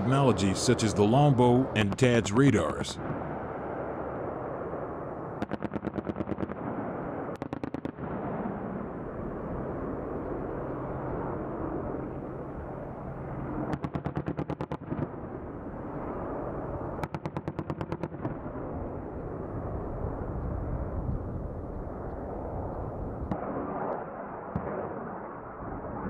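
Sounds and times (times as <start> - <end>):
helicopter rotors and turbines: 0.0 - 26.0
rapid cannon fire bursts: 5.4 - 8.8, 13.6 - 15.2, 17.0 - 18.7.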